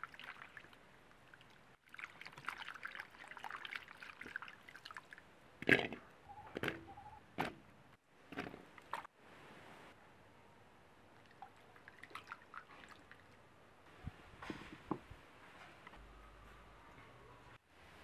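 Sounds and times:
water splashing in a pot: 0:00.0 - 0:06.0, 0:11.2 - 0:13.4.

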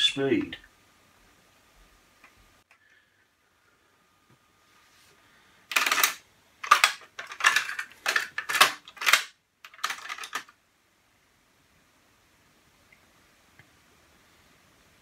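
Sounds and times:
cassette deck mechanism rattling: 0:05.7 - 0:10.5.

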